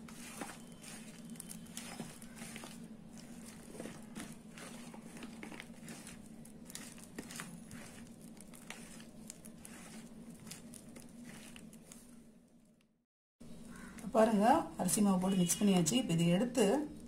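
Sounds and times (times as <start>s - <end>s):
hand squelching wet batter: 0.0s - 12.2s.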